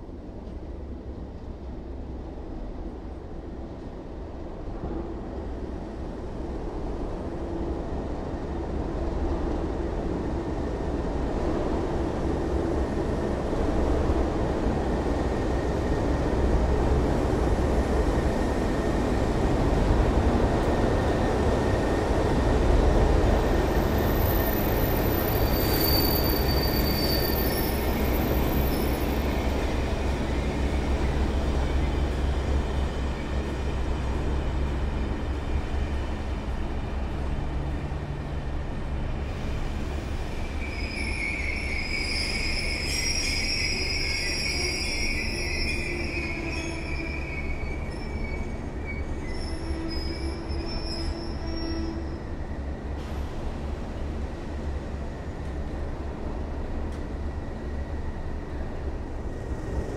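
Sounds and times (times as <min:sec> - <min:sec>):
high wheel squeal: 0:23.8 - 0:30.5, 0:40.4 - 0:52.2.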